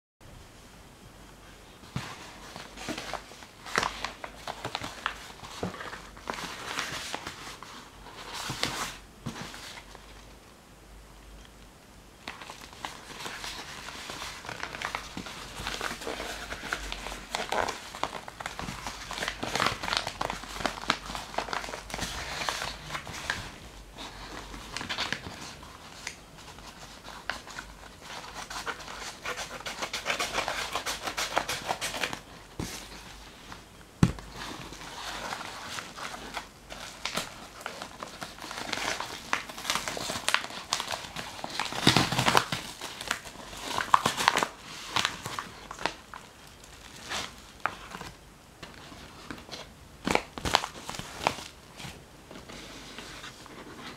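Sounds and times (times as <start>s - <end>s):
bubble wrap tearing: 12.3s - 23.6s, 34.4s - 48.1s.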